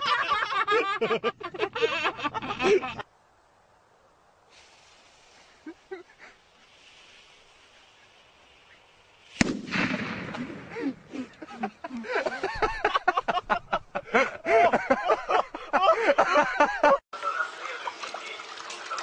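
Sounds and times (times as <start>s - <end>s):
faint fuse hiss: 3.0s - 14.3s
loud explosive bang: 9.4s - 10.8s.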